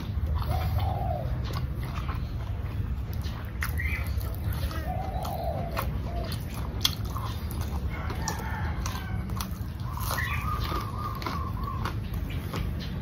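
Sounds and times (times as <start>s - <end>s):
chewing sticky rice: 0.0s - 13.0s
rooster crowing: 7.9s - 9.7s.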